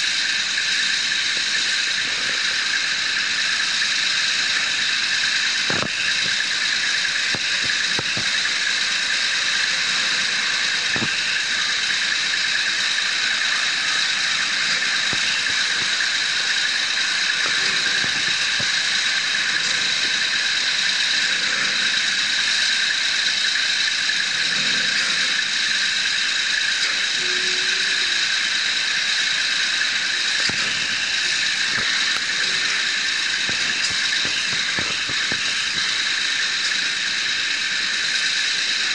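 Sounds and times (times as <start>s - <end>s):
winches and engines whining: 0.0s - 38.9s.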